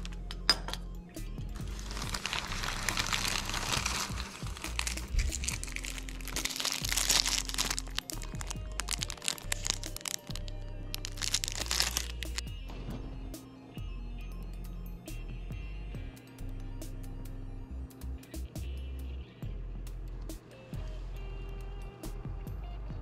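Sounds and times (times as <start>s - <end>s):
background music with bass line: 0.0s - 23.0s
shopping bag and paper rustling: 1.6s - 12.4s.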